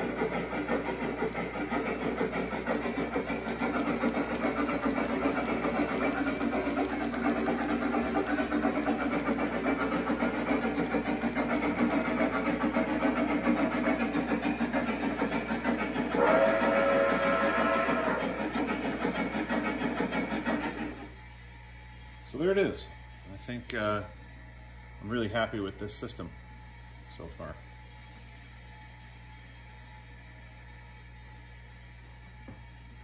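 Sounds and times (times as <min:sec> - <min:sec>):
steam locomotive chuffing: 0:00.0 - 0:21.2.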